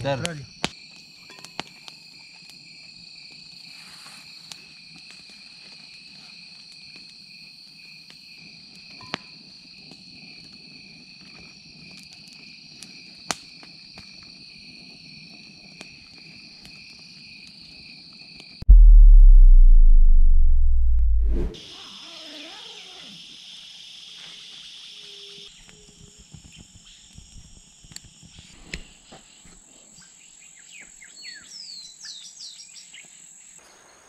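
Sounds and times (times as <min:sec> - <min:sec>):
insects chirring: 0:21.6 - 0:33.6.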